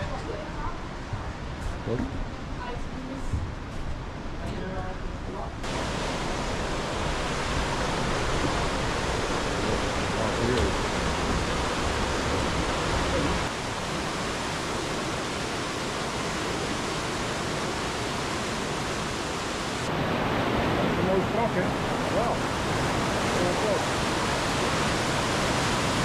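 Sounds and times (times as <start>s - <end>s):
waterfall roaring: 5.6s - 26.0s.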